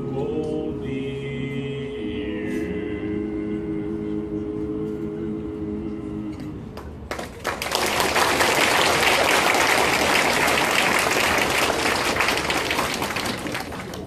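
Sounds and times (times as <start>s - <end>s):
audience applauding: 7.1s - 14.0s.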